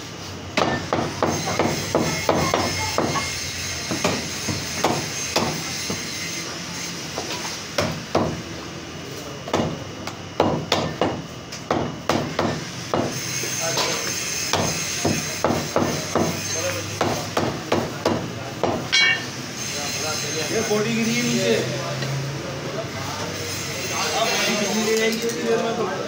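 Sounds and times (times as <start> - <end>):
cleaver chopping meat on wood: 0.6 - 3.2, 10.4 - 13.2, 17.0 - 18.9.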